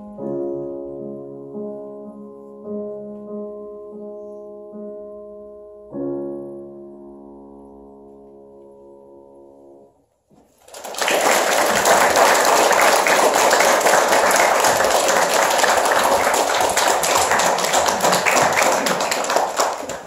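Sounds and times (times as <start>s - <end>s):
audience applauding: 10.6s - 20.0s.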